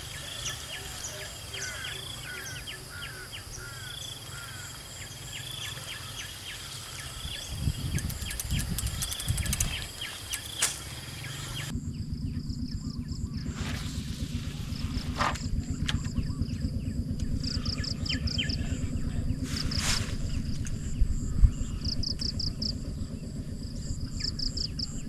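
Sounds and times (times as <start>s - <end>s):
birds chirping: 0.0s - 25.0s
insects: 0.0s - 25.0s
low hum: 0.0s - 25.0s
low rumble: 4.9s - 25.0s
sharp clicks: 7.8s - 10.9s.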